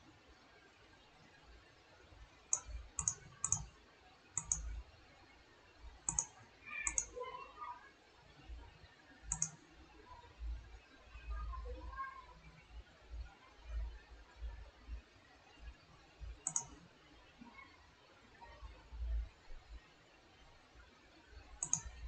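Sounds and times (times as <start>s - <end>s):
computer mouse double clicks: 2.5s - 3.7s, 4.4s - 4.6s, 6.1s - 7.1s, 9.3s - 9.6s, 16.4s - 16.8s, 21.6s - 22.0s.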